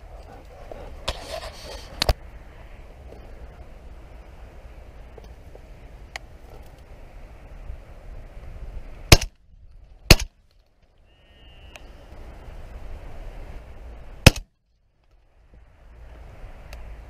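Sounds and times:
shotgun shots: 9.1s - 9.3s, 10.1s - 10.3s, 14.2s - 14.5s.

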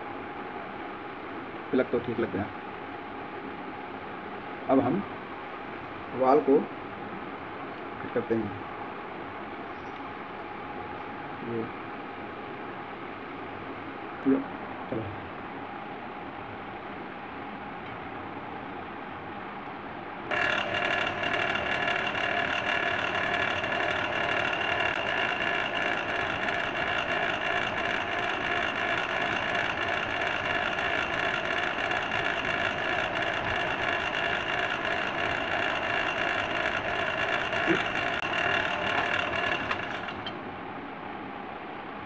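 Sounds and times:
drill press motor whining: 20.3s - 40.4s.

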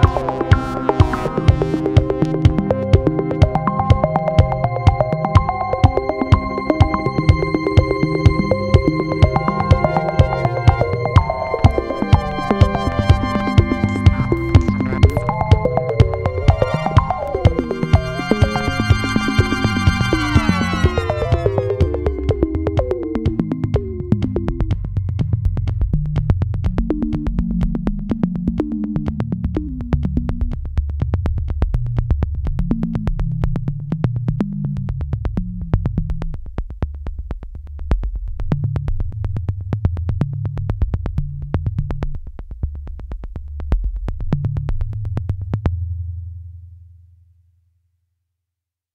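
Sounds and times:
electronic music with synth bass: 0.0s - 30.6s.

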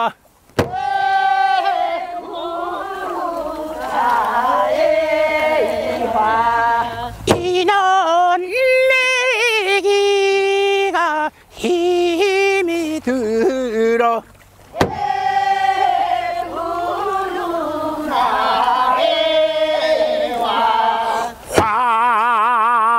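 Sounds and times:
voices singing together: 0.6s - 13.7s, 14.7s - 22.4s
solo voice singing held notes: 14.8s - 21.9s.

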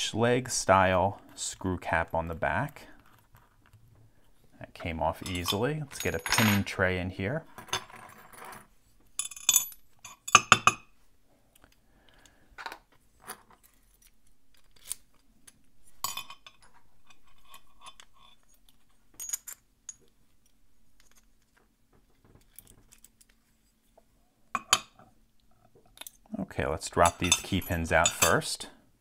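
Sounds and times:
metal lock parts clinking: 5.1s - 6.8s, 7.5s - 10.9s, 13.4s - 21.6s, 22.4s - 23.6s, 25.9s - 26.3s, 26.9s - 28.5s.

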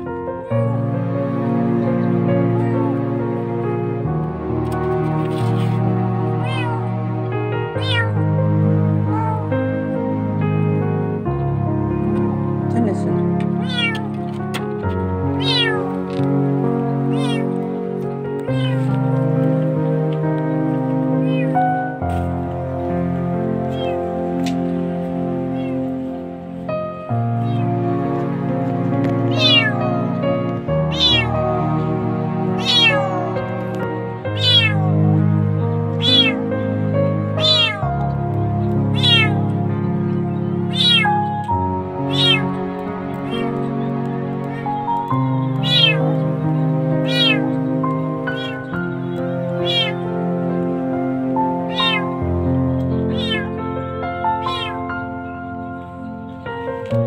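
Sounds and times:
background music with held notes: 0.0s - 57.0s
kitten meowing: 0.4s - 0.9s, 2.4s - 3.0s, 5.2s - 7.0s, 7.7s - 8.4s, 9.0s - 9.6s, 13.5s - 14.2s, 14.8s - 16.1s, 17.0s - 17.6s, 18.4s - 19.1s, 21.2s - 21.7s, 23.6s - 24.2s, 25.5s - 25.9s, 27.4s - 27.8s, 29.3s - 30.1s, 30.8s - 35.2s, 35.9s - 36.5s, 37.3s - 39.6s, 40.7s - 42.6s, 43.2s - 43.7s, 44.4s - 46.2s, 47.0s - 47.6s, 48.2s - 48.8s, 49.6s - 50.0s, 51.6s - 52.2s, 52.9s - 53.6s, 54.3s - 54.9s.

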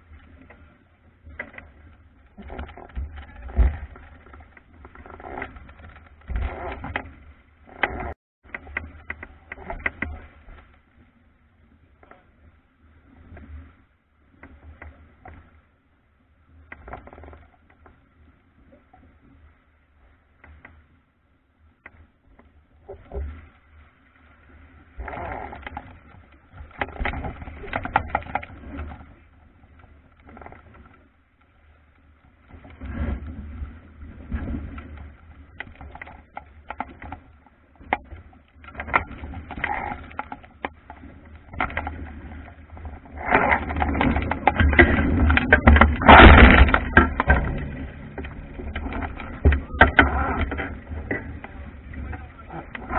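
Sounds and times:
water slapping against hull: 32.3s - 52.9s.

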